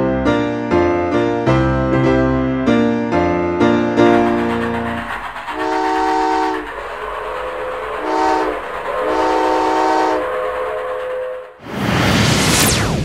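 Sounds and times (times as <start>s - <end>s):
running train rushing noise: 2.7s - 13.0s
train whistle blasts: 5.5s - 6.7s, 7.7s - 11.4s.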